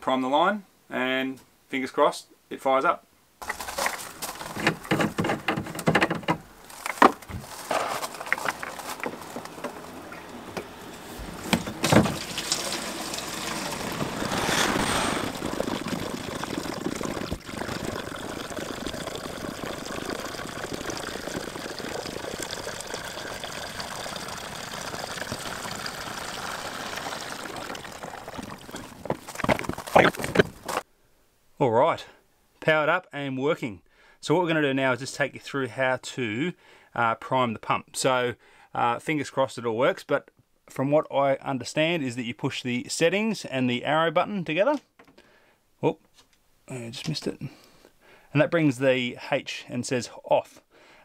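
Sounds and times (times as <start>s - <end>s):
liquid pouring into plastic tank: 3.4s - 6.4s, 11.3s - 30.8s.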